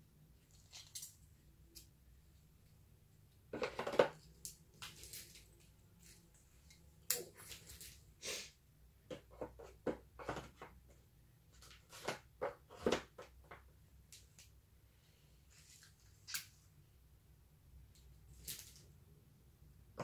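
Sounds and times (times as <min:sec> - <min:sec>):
hair rollers rustling: 0:03.6 - 0:08.1.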